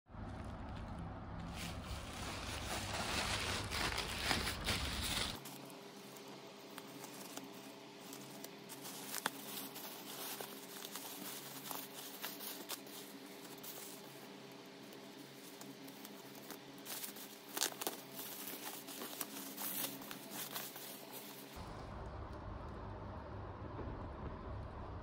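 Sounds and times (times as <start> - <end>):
bubble wrap rustling: 0.2 - 21.6
plastic bag crinkling: 0.3 - 21.6
scissors cutting plastic: 3.8 - 21.6
low rumble: 21.6 - 25.0.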